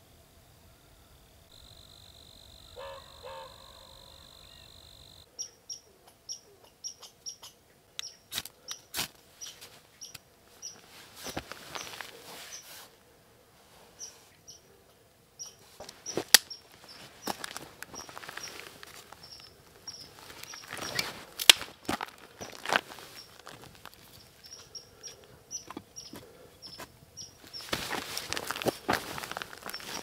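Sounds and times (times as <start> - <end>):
high-pitched insect trill: 1.5 - 5.3
small bird chirping: 4.1 - 12.7, 14.0 - 14.7, 15.4 - 21.2, 22.3 - 27.8, 29.1 - 30.0
sharp cracks and snaps: 8.0 - 9.2, 16.1 - 24.6.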